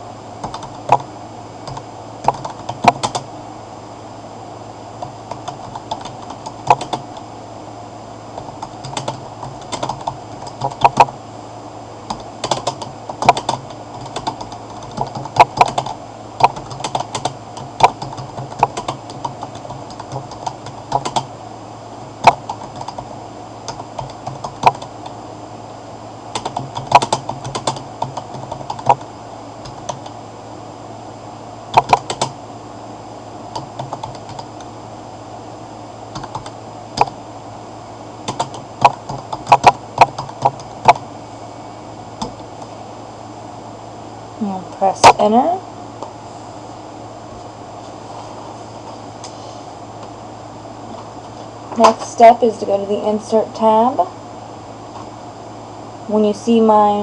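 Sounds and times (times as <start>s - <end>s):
steady low hum: 0.0s - 57.0s
computer keyboard typing: 0.4s - 3.3s, 5.0s - 7.2s, 8.4s - 11.1s, 12.1s - 21.3s, 22.2s - 23.1s, 23.7s - 24.9s, 26.3s - 30.1s, 31.7s - 32.4s, 33.6s - 34.6s, 36.2s - 37.1s, 38.2s - 41.0s.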